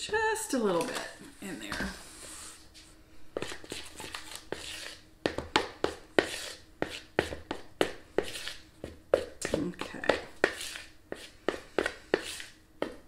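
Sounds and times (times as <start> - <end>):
utensil scraping dough in bowl: 3.4 - 13.0.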